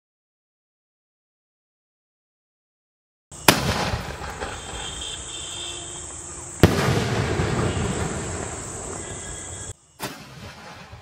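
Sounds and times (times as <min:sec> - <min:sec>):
firework launch bang: 0:03.4 - 0:05.7, 0:06.6 - 0:11.0
firework shell bursting: 0:03.4 - 0:11.0.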